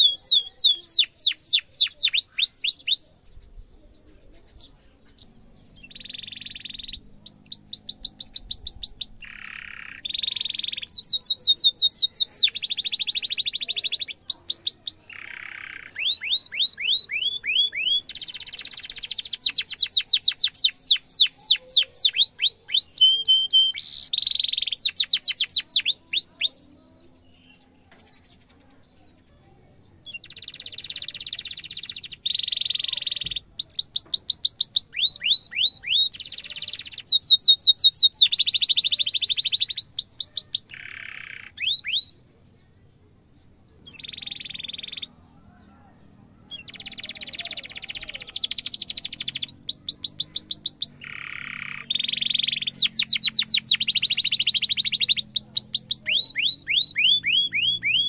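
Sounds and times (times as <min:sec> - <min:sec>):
canary singing: 0:00.0 - 0:58.0.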